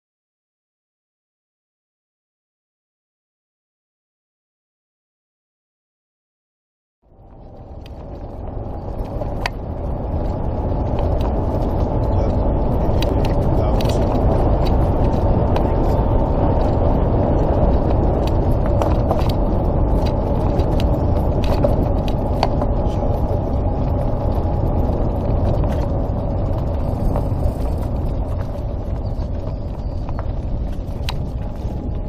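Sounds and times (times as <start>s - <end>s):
golf cart rolling rumble: 7.1s - 32.0s
small clicks and rattles: 7.3s - 16.8s, 17.5s - 32.0s.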